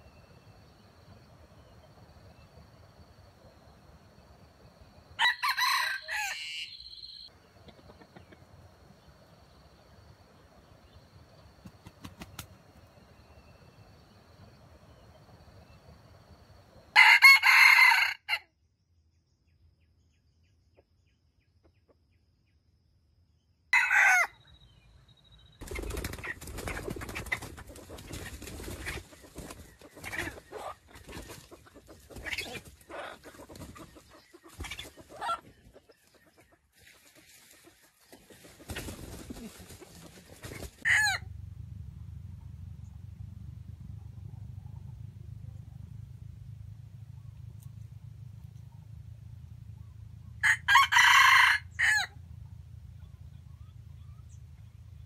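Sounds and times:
rooster crowing: 5.2s - 7.3s, 16.9s - 18.4s, 23.8s - 24.4s, 40.8s - 41.3s, 50.4s - 52.2s
quiet clucks: 7.5s - 8.7s.

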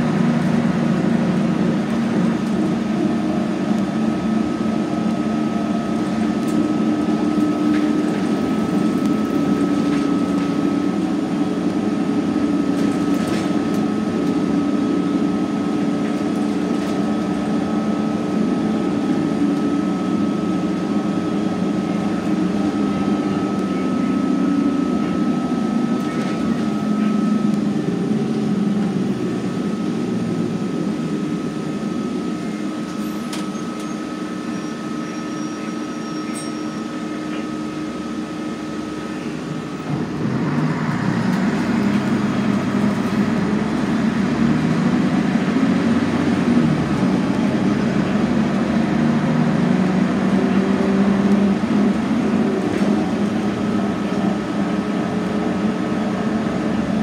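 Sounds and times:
bus diesel engine running: 0.0s - 57.0s
road noise: 0.0s - 57.0s
thin steady whine: 13.6s - 45.6s.

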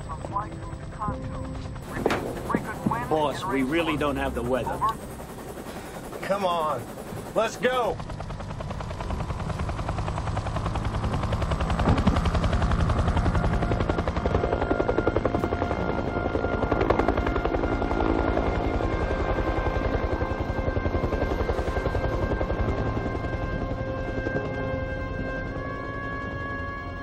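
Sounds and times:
steady higher tones: 0.0s - 8.0s
helicopter rotor beating: 0.0s - 27.0s.

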